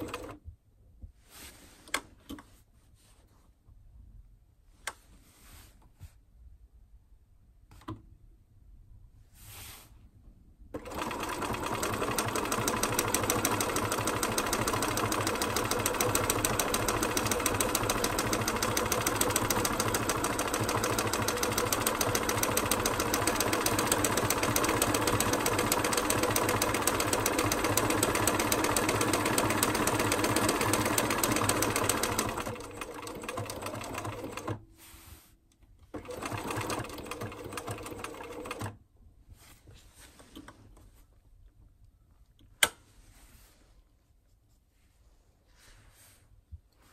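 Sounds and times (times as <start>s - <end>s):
sewing machine stitching: 0.0s - 0.4s, 10.8s - 34.6s, 35.9s - 38.8s.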